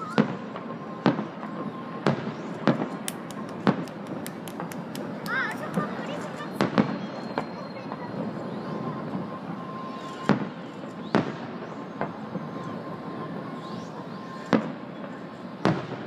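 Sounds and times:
steady background noise: 0.0 - 16.0
firework shells bursting: 2.1 - 7.5.

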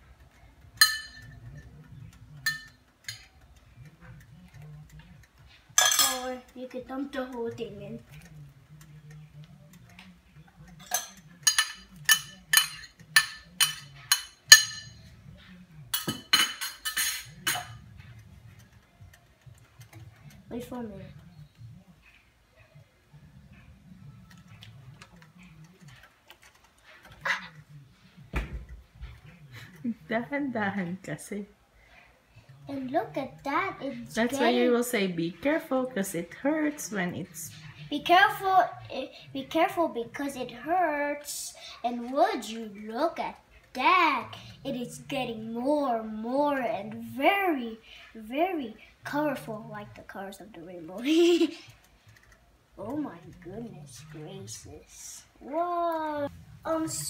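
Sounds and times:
metal spoon clinking cookware: 0.8 - 1.7, 2.4 - 3.5, 5.8 - 6.4, 10.7 - 15.1, 15.9 - 17.8
spoon clatter: 0.8 - 1.7, 2.4 - 3.6, 5.8 - 6.4, 10.8 - 15.0, 15.9 - 17.8.

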